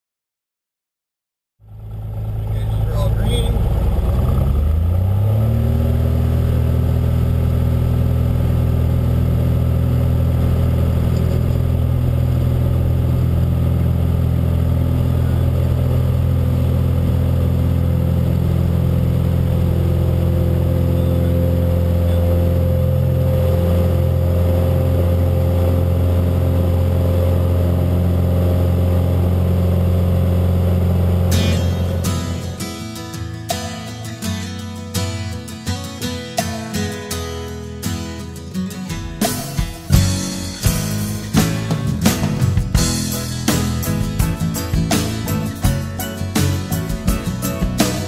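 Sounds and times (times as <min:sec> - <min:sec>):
airplane engine and propeller: 0:01.6 - 0:33.3.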